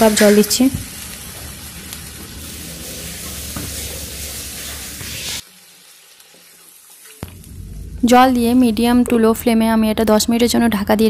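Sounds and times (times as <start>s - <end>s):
water sizzling in hot oil: 0.0s - 8.0s.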